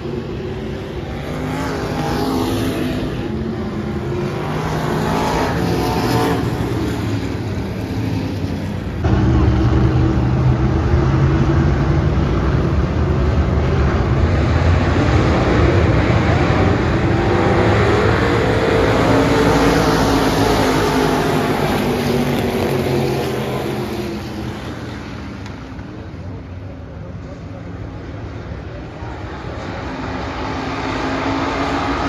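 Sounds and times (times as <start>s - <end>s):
race car engines at high revs: 0.0s - 32.0s.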